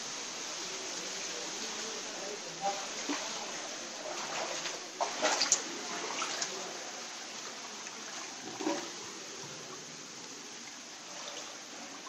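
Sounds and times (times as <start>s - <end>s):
steady water hiss: 0.0s - 12.0s
water sloshing from wading: 2.6s - 12.0s.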